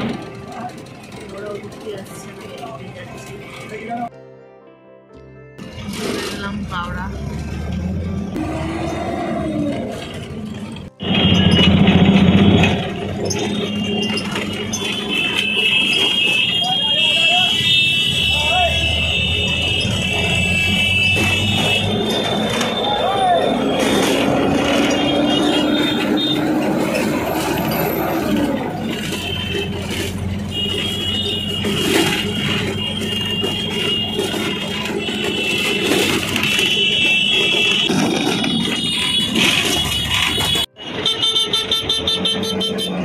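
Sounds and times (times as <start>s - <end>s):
bus engine noise: 0.0s - 4.1s, 5.6s - 43.0s
dense road traffic: 0.0s - 4.2s, 5.6s - 43.0s
vehicle horns: 11.0s - 43.0s.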